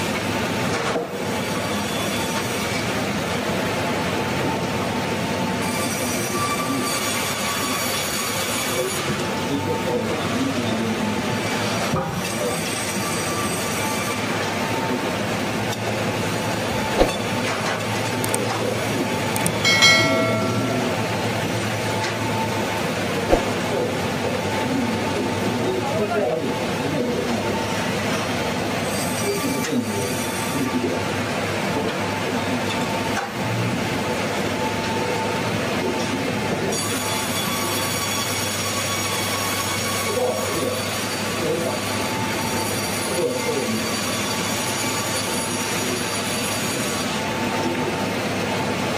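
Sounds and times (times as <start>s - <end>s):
brief ringing tone: 19.6s - 21.3s.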